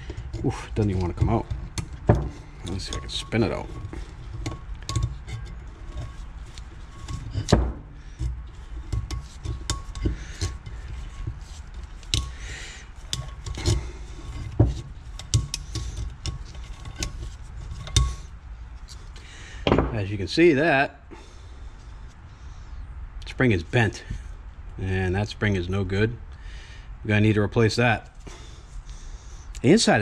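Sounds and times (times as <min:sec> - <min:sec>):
metallic clicks and scraping: 0:00.0 - 0:19.2.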